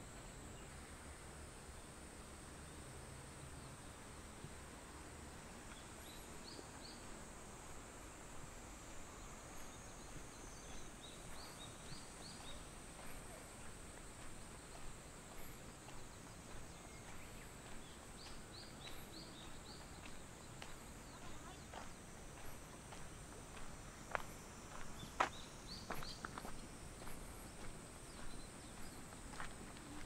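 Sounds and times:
steady hiss: 0.0s - 30.0s
footsteps on wet ground: 8.9s - 30.0s
small bird chirping: 24.8s - 29.5s.

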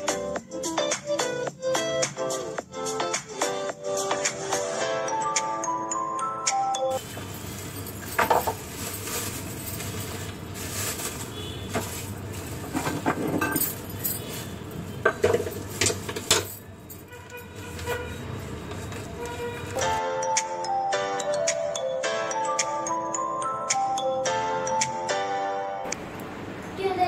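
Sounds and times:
handling noise: 6.9s - 20.0s
pots and dishes clinking: 8.0s - 8.7s, 12.6s - 14.0s.

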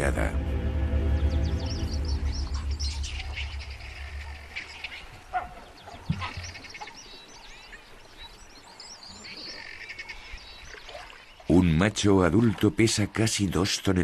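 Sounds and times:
low hum: 0.0s - 6.1s
birds chirping and whistling: 1.1s - 11.5s.

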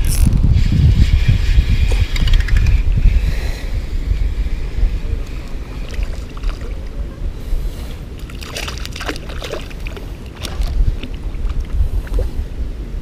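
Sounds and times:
wind rumbling on microphone: 0.0s - 13.0s
water lapping at hull: 5.4s - 12.5s.

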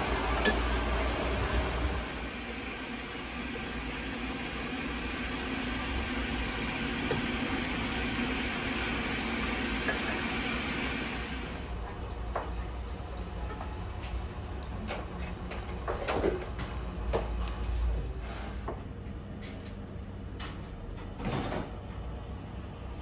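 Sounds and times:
pot boiling hard: 0.0s - 11.8s.

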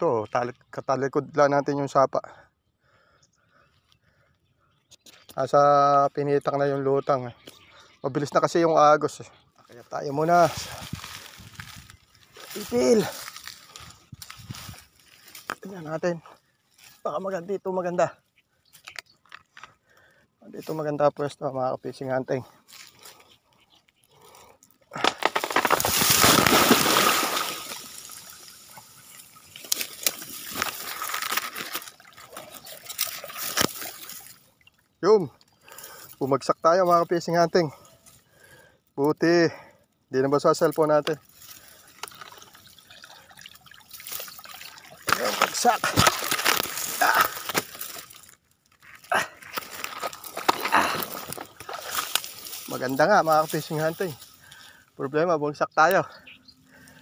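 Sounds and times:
heavy breathing: 2.3s - 4.6s, 19.6s - 20.4s, 22.5s - 25.2s, 37.7s - 38.8s, 49.0s - 51.8s, 56.1s - 57.0s
dry twigs cracking and rustling: 9.7s - 17.4s, 18.6s - 20.8s, 21.9s - 39.2s, 39.9s - 54.8s
splash into water: 25.8s - 34.4s.

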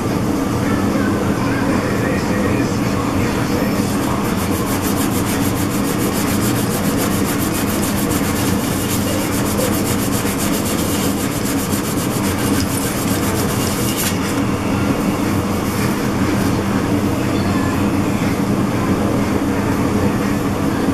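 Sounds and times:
abrasive mesh rubbing on metal: 4.0s - 14.3s.

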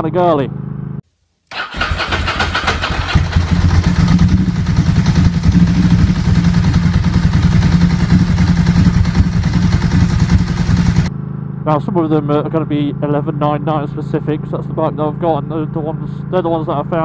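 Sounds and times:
motorcycle engine idling: 1.5s - 11.1s.

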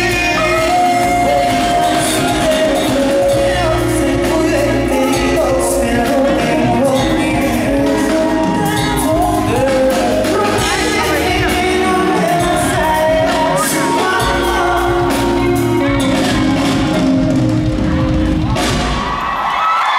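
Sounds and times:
man singing through pa: 0.0s - 17.4s
live band with guitars and drums: 0.0s - 19.9s.

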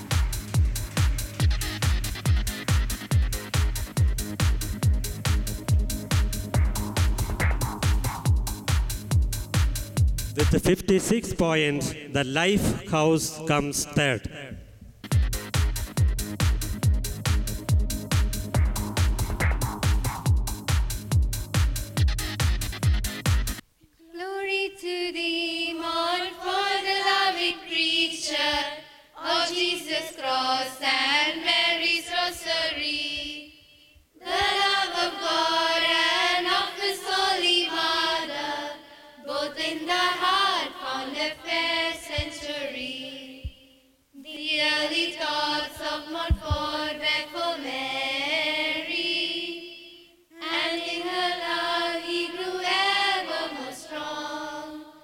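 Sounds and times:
children's choir singing: 24.2s - 33.6s, 34.2s - 55.0s.

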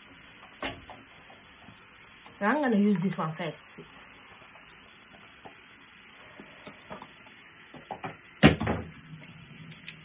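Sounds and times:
tap running into sink: 0.2s - 3.0s, 4.4s - 5.7s, 6.3s - 10.0s.

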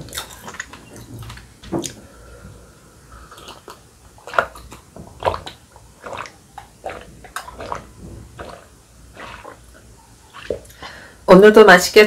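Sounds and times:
person gulping water: 3.2s - 11.0s.

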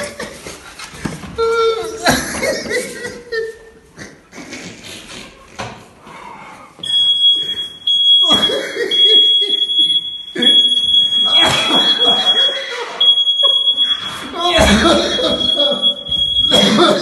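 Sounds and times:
smoke detector alarm tone: 6.8s - 17.0s.

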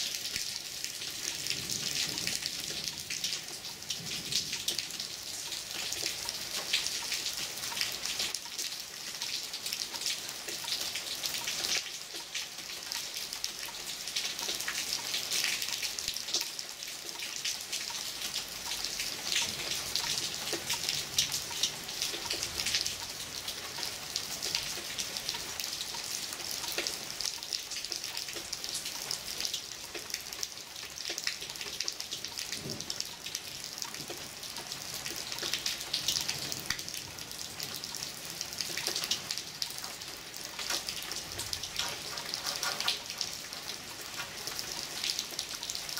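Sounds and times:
raindrops hitting close by: 0.0s - 45.9s
heavy rain hissing: 40.6s - 44.5s.

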